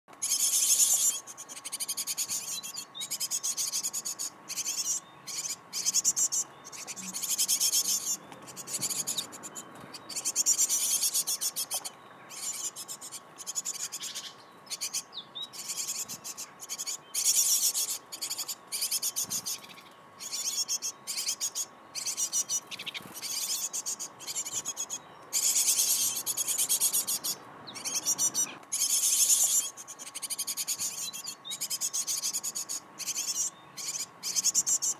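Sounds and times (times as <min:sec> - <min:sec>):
nestlings begging calls: 0:00.1 - 0:34.9.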